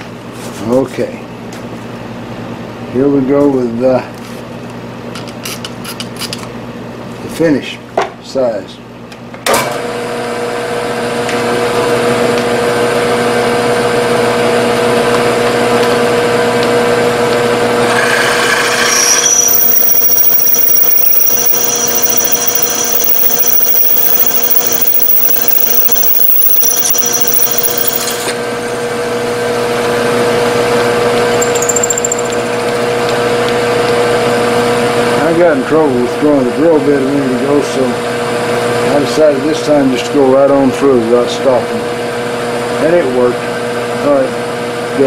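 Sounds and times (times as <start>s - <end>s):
milling machine spindle running: 17.0s - 28.6s, 29.8s - 34.1s
high-pitched drilling squeal: 17.9s - 28.4s, 31.2s - 33.0s.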